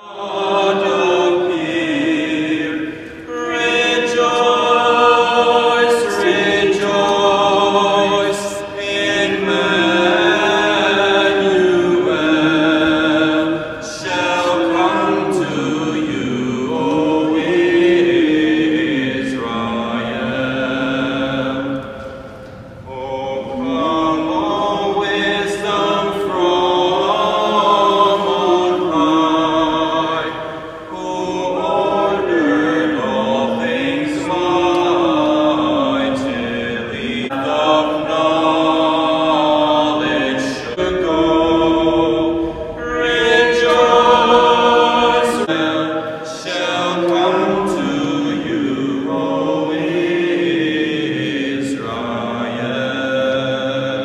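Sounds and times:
voices singing a slow hymn: 0.0 - 54.0.

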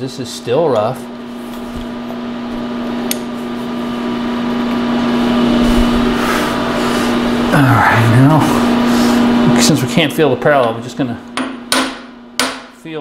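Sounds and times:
electric motor humming: 1.0 - 10.0.

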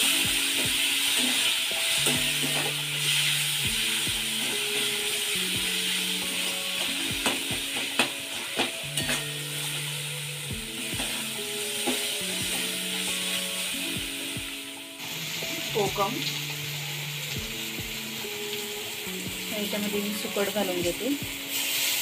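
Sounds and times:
food sizzling in hot oil: 0.0 - 22.0
soft background music: 0.0 - 22.0
spatula stirring and scraping: 10.8 - 13.6.

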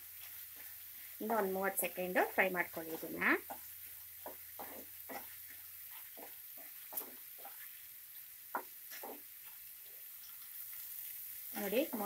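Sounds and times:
prawns sizzling: 0.0 - 12.0
spatula scraping frying pan: 2.7 - 12.0.

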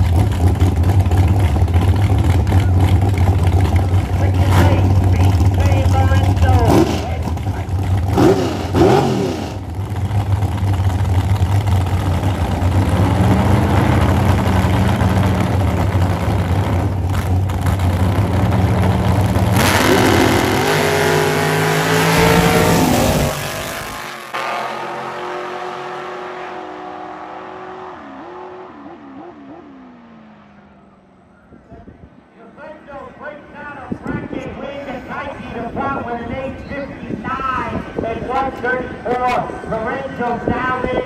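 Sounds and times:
race car engines revving: 0.0 - 32.4.

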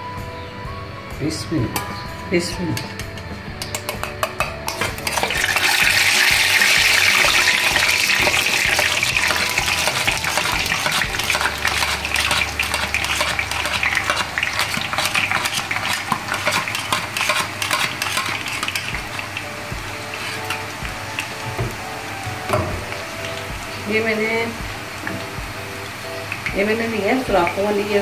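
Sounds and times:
batter sizzling in hot oil: 4.6 - 28.0
metal spoon scraping steel: 8.5 - 19.2.

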